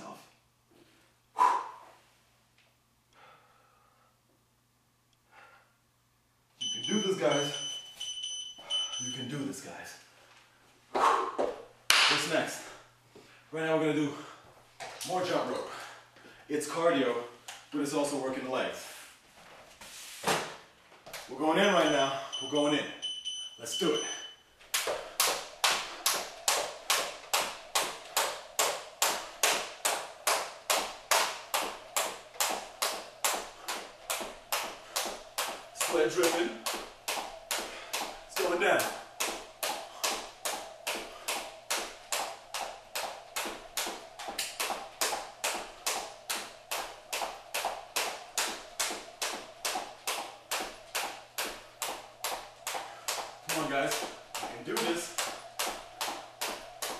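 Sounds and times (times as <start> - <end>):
jump rope slapping floor: 24.7 - 56.9.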